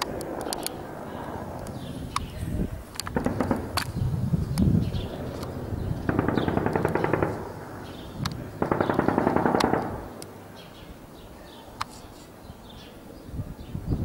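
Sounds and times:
automatic gunfire bursts: 3.1 - 4.0, 6.0 - 10.3.

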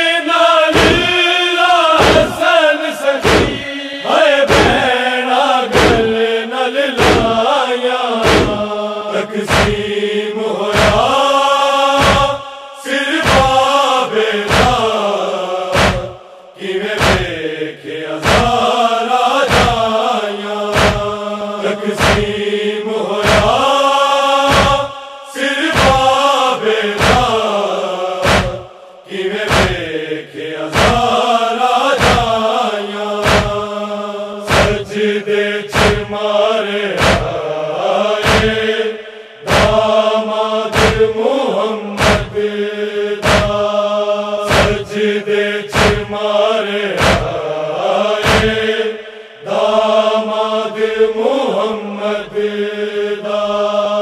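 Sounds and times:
group of voices chanting: 0.0 - 54.0
chest-beating thumps: 0.8 - 1.1, 2.0 - 2.4, 3.2 - 3.7, 4.5 - 4.9, 5.8 - 6.2, 7.0 - 7.4, 8.2 - 8.7, 9.5 - 9.9, 10.8 - 11.1, 12.0 - 12.4, 13.2 - 13.6, 14.5 - 14.9, 15.7 - 16.2, 17.0 - 17.4, 18.2 - 18.6, 19.5 - 19.9, 20.7 - 21.2, 22.0 - 22.4, 23.2 - 23.6, 24.5 - 25.0, 25.8 - 26.1, 27.0 - 27.4, 28.2 - 28.8, 29.5 - 29.9, 30.7 - 31.1, 32.0 - 32.4, 33.2 - 33.7, 34.5 - 35.0, 35.7 - 36.1, 37.0 - 37.4, 38.2 - 38.7, 39.5 - 39.9, 40.7 - 41.1, 42.0 - 42.4, 43.2 - 43.7, 44.5 - 45.0, 45.7 - 46.1, 47.0 - 47.4, 48.2 - 48.7.

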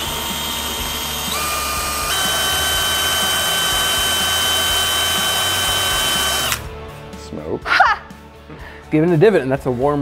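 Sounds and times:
cordless drill motor whine: 0.0 - 6.7.

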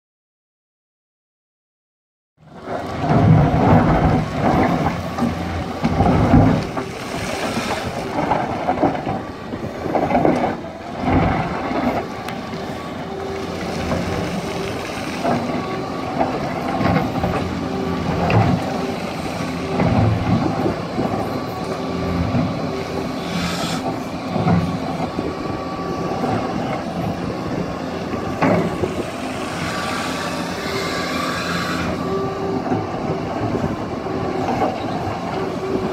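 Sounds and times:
excavator diesel engine running: 2.4 - 35.9
bucket scraping rocky soil: 6.6 - 8.2.

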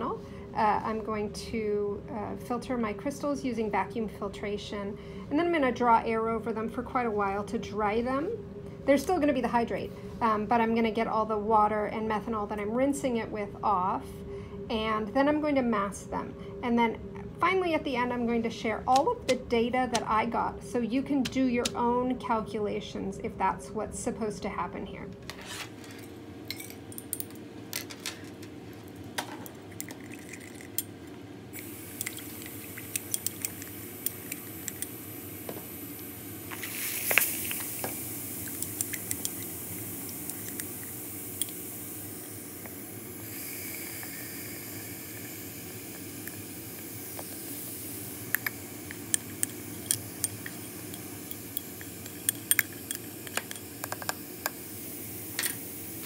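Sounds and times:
vacuum suction hiss and hum: 0.0 - 56.0
glassware clinking: 26.5 - 27.3, 49.8 - 54.0.

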